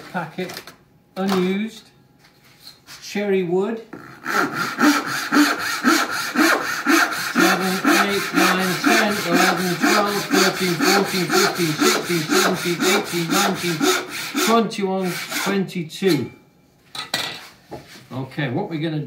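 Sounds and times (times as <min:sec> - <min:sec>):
hand saw rasping through wood: 0:04.0 - 0:15.6.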